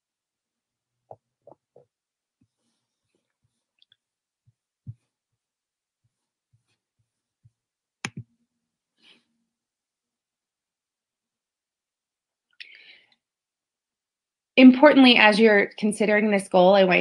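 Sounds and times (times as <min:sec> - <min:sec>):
faint clicks and soft knocks: 0:01.0 - 0:05.4.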